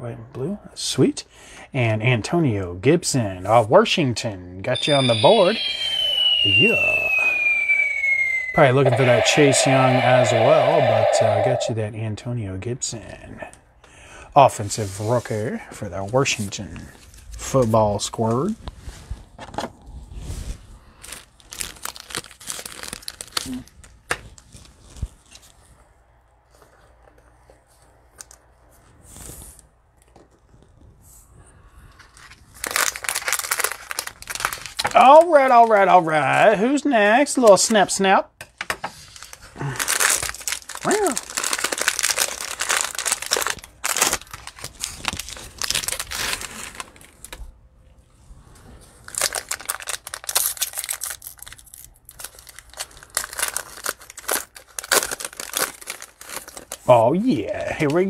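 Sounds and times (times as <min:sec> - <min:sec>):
plastic wrapper crackling: 0:21.0 - 0:25.0, 0:32.5 - 0:35.2, 0:39.1 - 0:47.4, 0:49.1 - 0:56.9.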